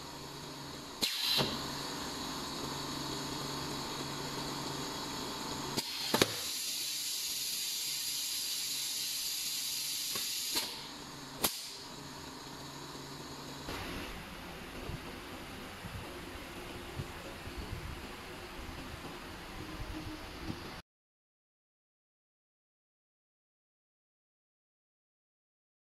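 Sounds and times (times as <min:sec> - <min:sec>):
machine hum: 0:00.0 - 0:07.6, 0:09.9 - 0:20.8
pneumatic valve clicks: 0:01.0 - 0:01.6, 0:05.8 - 0:11.8
air hiss: 0:01.0 - 0:03.5, 0:05.7 - 0:14.3.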